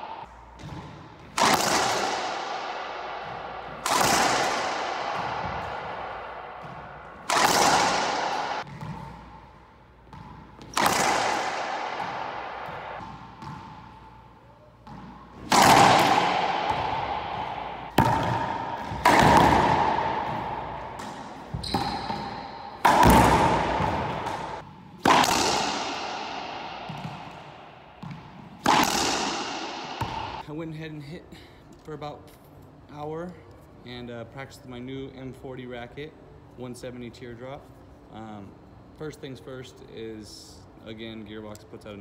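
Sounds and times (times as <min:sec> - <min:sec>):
racquetball cracks echoing: 0:00.0 - 0:30.4.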